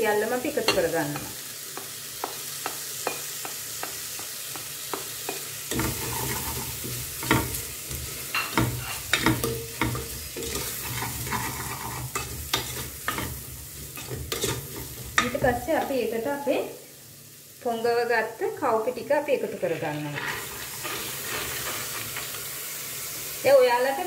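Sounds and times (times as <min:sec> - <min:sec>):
vegetables sizzling in oil: 0:00.0 - 0:24.0
spoon stirring and scraping pan: 0:00.5 - 0:16.2, 0:19.5 - 0:22.6.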